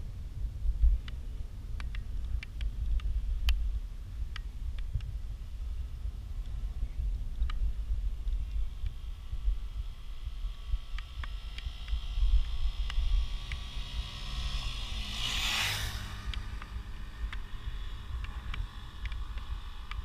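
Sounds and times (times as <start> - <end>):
wind rumbling on microphone: 0.0 - 20.0
motor vehicle passing: 9.0 - 20.0.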